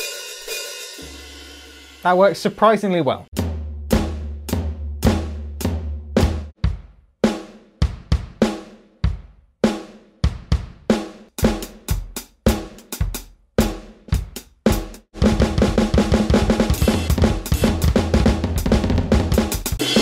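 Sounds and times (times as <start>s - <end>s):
electronic drum kit hits: 3.4s - 7.0s, 15.2s - 20.0s.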